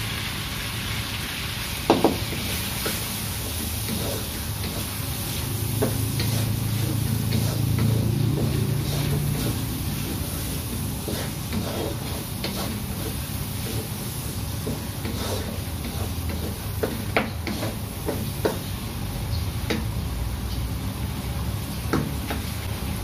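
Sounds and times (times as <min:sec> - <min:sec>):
onions sizzling in hot oil: 0:00.0 - 0:23.0
wooden spatula scraping pan: 0:02.1 - 0:18.6.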